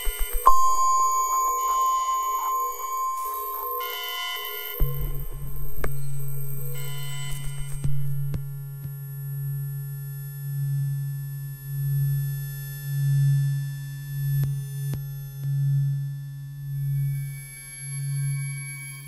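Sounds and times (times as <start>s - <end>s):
low pulsing electronic tone: 0.0s - 11.2s.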